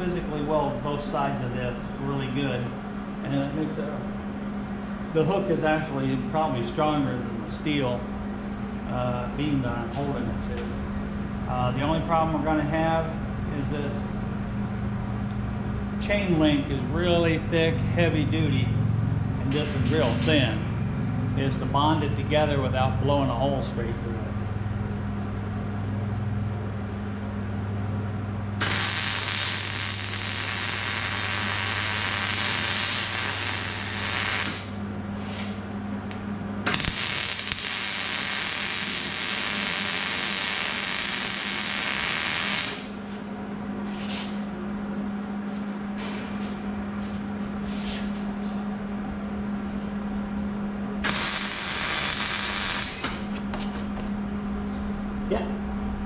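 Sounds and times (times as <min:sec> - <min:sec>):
steady low hum: 0:00.0 - 0:56.0
welding arc crackling and hissing: 0:28.6 - 0:34.8, 0:36.7 - 0:43.0, 0:51.0 - 0:53.3.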